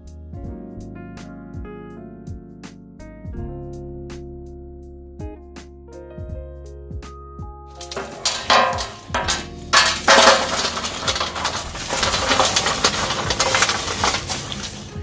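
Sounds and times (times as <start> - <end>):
charcoal clattering into metal tray: 7.8 - 15.0.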